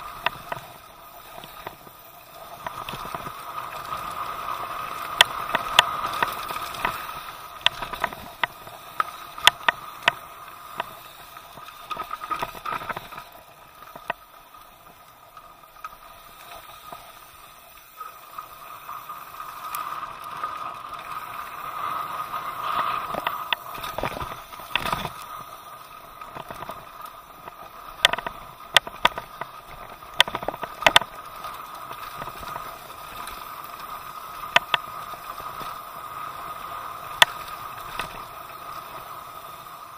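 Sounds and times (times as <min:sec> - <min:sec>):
bike clacking and rattling: 0:30.2 - 0:31.2.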